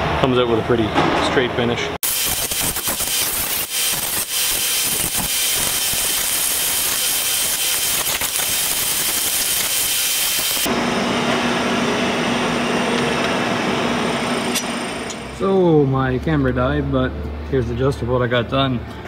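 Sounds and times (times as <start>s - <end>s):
angle grinder cutting steel: 2.0s - 10.7s.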